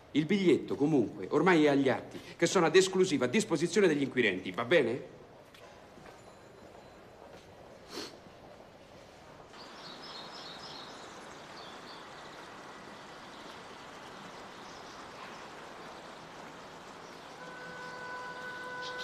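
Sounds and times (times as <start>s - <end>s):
birds chirping: 9.5s - 19.0s
stream water rushing: 9.5s - 19.0s.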